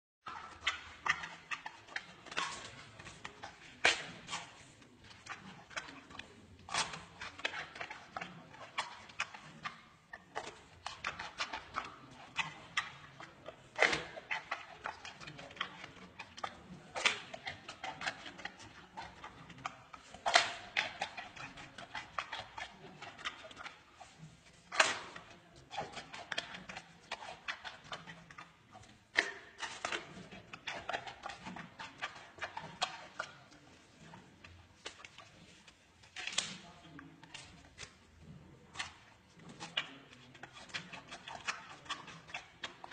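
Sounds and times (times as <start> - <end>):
panda crunching bamboo: 0.3 - 34.2, 34.8 - 38.1, 38.7 - 42.9.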